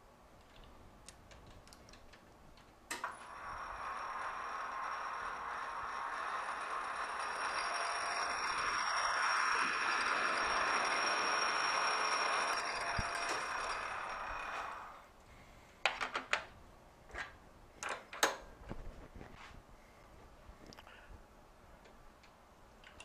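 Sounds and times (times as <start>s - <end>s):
metal lathe running: 3.1s - 15.0s
metallic clicks and knocks: 22.2s - 23.0s.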